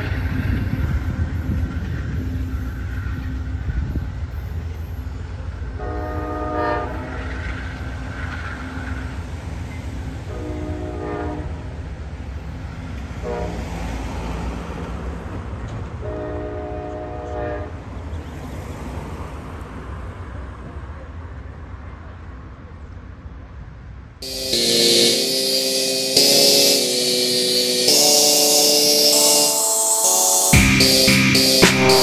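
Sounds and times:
train rumbling: 0.0s - 22.0s, 24.2s - 32.0s
locomotive air horn blasts: 5.8s - 7.2s, 10.3s - 11.6s, 13.2s - 13.6s, 16.0s - 17.7s, 24.2s - 32.0s.

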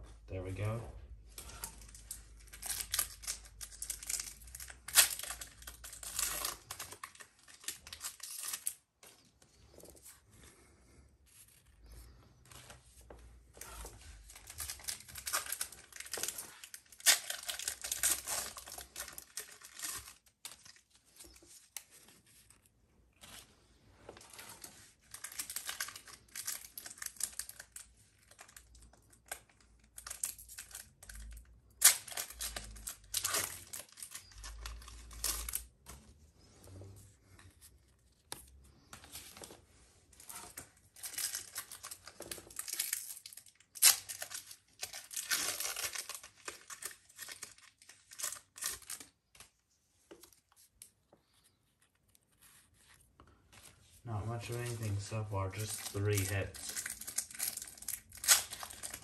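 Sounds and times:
foil wrappers tearing and crinkling: 1.4s - 8.8s, 13.6s - 21.9s, 24.3s - 35.7s, 40.3s - 49.4s, 54.2s - 59.0s
cards being handled: 43.9s - 59.0s.

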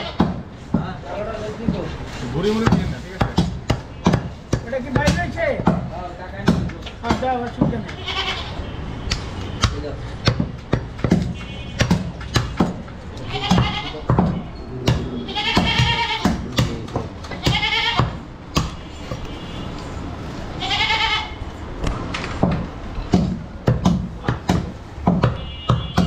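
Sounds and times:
goat bleating: 0.0s - 0.2s, 7.9s - 8.6s, 13.2s - 14.1s, 14.8s - 16.6s, 17.3s - 18.2s, 20.6s - 21.4s
knocks of meat being chopped: 0.1s - 1.0s, 2.6s - 8.0s, 9.0s - 18.8s, 22.3s - 26.0s.

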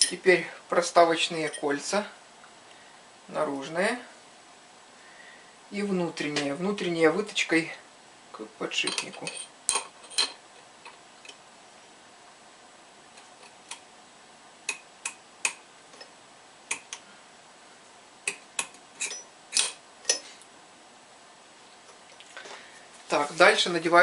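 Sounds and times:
metal rings clicking: 18.3s - 20.2s.

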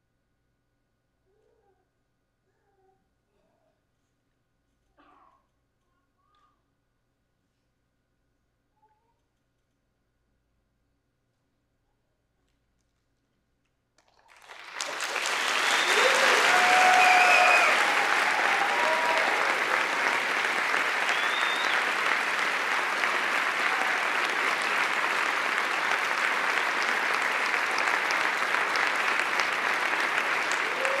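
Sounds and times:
audience applauding: 14.1s - 31.0s
audience cheering: 14.3s - 31.0s.

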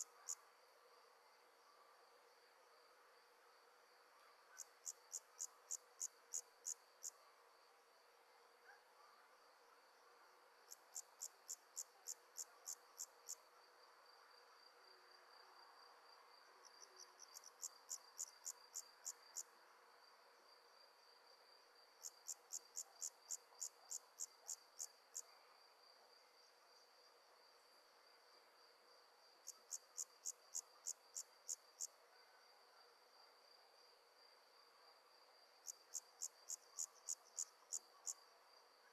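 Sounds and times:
loud insect chirps: 35.6s - 38.2s.

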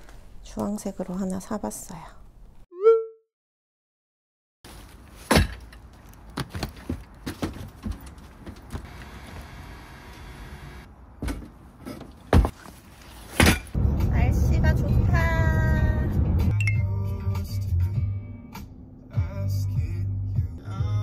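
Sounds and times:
camping gear knocking and thumping: 4.8s - 8.9s, 11.2s - 13.8s.

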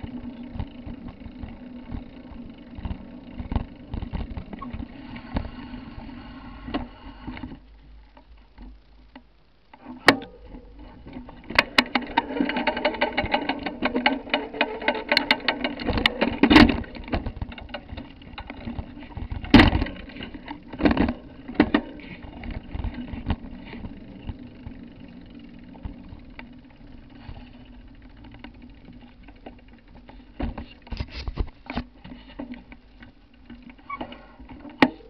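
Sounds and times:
low hum: 0.0s - 30.9s
camera handling rubbing: 30.9s - 31.9s.

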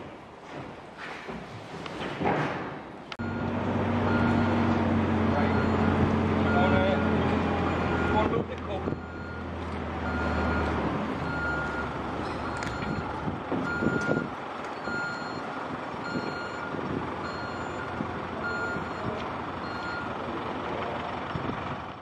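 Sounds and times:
machine engine rumble: 3.1s - 22.0s
reversing alarm beeping: 3.2s - 8.3s, 8.9s - 20.1s.

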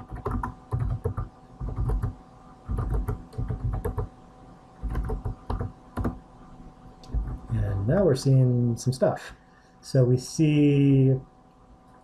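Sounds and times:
computer keyboard typing: 0.0s - 4.1s, 4.8s - 6.2s, 7.1s - 7.5s.

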